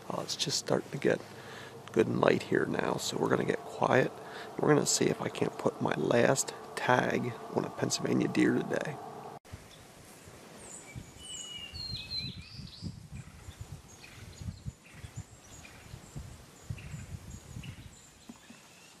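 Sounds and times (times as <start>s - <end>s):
low background rumble: 1.0s - 9.4s.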